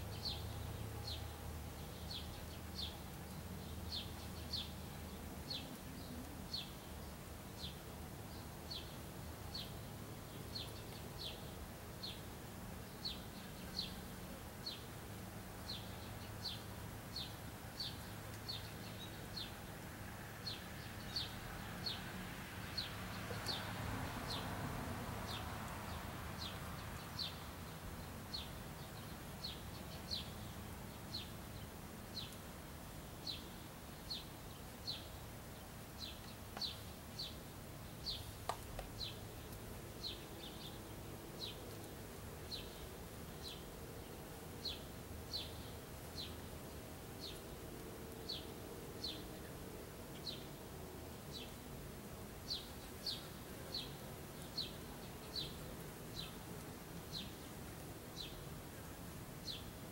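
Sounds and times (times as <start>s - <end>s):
bird chirping: 0.0s - 14.9s, 25.3s - 32.4s, 33.2s - 38.4s, 44.6s - 46.5s, 52.5s - 56.5s, 57.1s - 57.6s, 58.2s - 59.7s
soft rush of noise: 0.0s - 59.9s.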